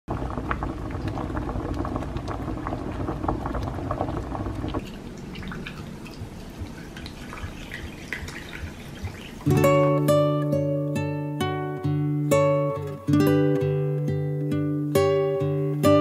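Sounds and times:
water boiling and bubbling: 0.1 - 10.3
sparkling water pouring and fizzing: 0.1 - 10.4.

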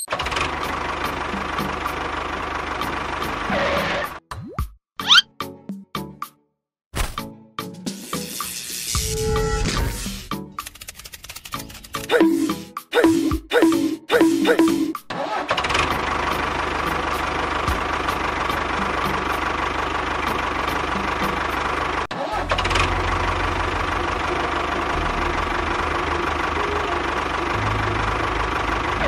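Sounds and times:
tractor engine running: 0.0 - 4.2, 10.2 - 29.0.

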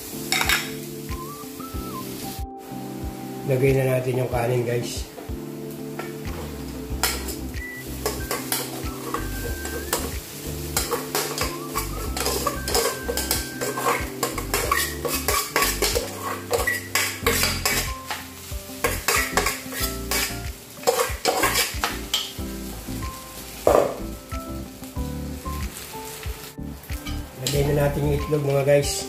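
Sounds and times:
light sizzle from hot pan: 0.0 - 29.0
metal spoon clinking and scraping: 8.0 - 22.4.

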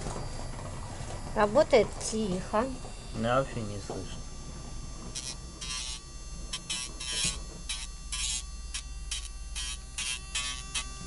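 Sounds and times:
small electric motor humming: 0.0 - 11.0
grinder rasping on claw: 5.0 - 11.0.

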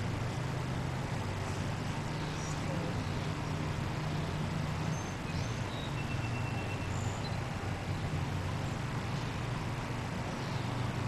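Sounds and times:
low hum and hiss: 0.0 - 11.0
faint high whistle-like chirps: 4.9 - 7.4.

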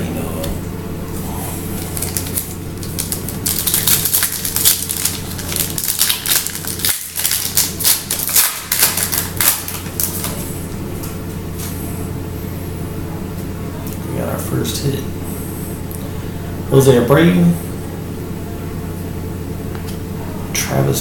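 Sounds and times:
steady low hum: 0.0 - 21.0
foil wrapper tearing and crinkling: 1.8 - 10.4.

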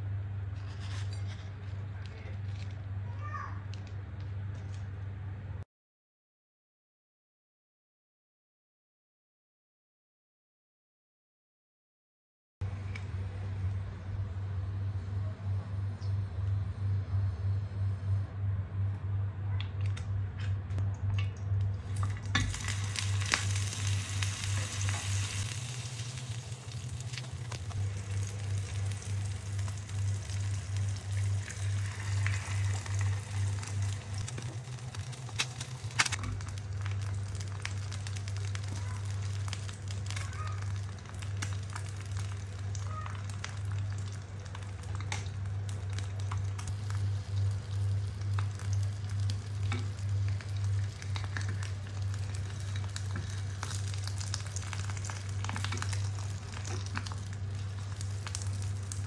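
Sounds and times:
low steady hum: 0.0 - 5.6, 12.6 - 59.0
food sizzling in a pan: 21.8 - 59.0.

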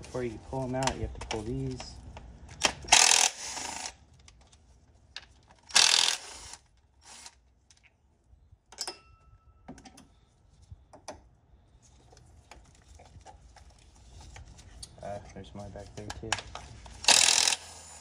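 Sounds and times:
clicks and metal clinks: 8.7 - 10.1
cordless power driver running: 17.0 - 18.0.

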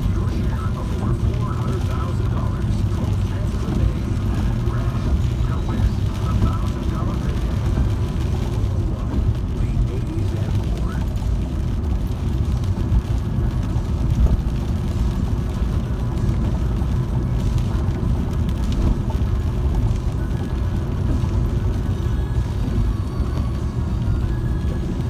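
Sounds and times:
car driving on wet road: 0.0 - 25.0.

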